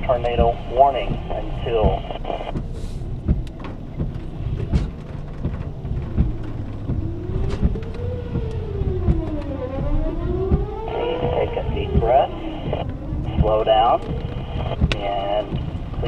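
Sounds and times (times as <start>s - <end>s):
low steady hum: 0.0s - 16.0s
warning siren wailing: 5.8s - 16.0s.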